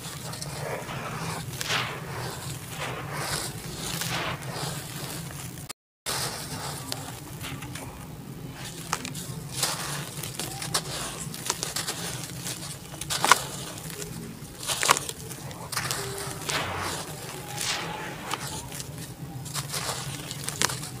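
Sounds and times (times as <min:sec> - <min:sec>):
dirt crumbs falling on pile: 0:00.0 - 0:21.0
hands crushing dry dirt clumps: 0:00.0 - 0:21.0
steady low hum: 0:00.0 - 0:21.0.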